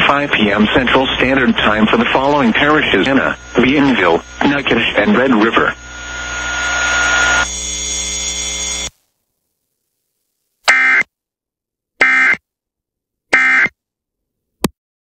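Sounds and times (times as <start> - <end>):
steady noise: 0.0 - 10.4
shrill digital data tones: 0.6 - 8.9.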